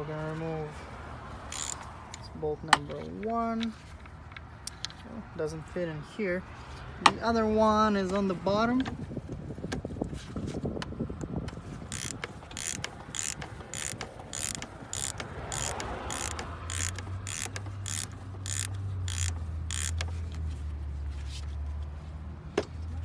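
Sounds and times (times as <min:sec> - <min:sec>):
socket ratchet clicking: 0:01.5 - 0:02.2, 0:11.2 - 0:20.5.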